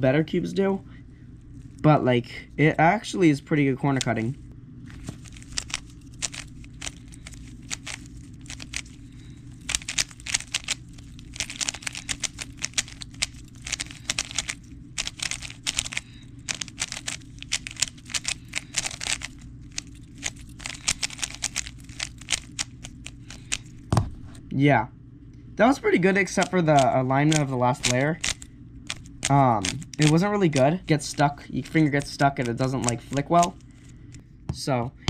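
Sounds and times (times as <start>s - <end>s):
puzzle cube clicking: 5.3s - 8.9s, 9.7s - 23.6s, 26.4s - 30.2s.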